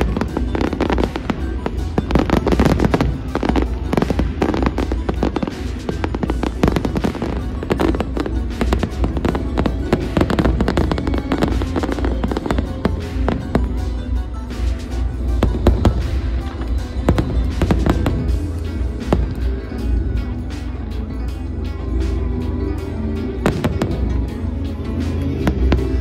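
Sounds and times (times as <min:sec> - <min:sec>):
fireworks bursting and crackling: 0:00.0 - 0:21.4, 0:22.1 - 0:26.0
music playing: 0:00.0 - 0:26.0.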